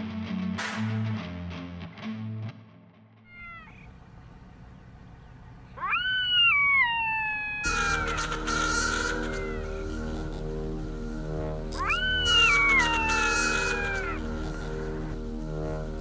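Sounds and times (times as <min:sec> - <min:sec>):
music: 0:00.0 - 0:03.3, 0:07.7 - 0:16.0
animal meow-like calls: 0:03.3 - 0:03.9, 0:05.8 - 0:08.1, 0:11.8 - 0:14.2.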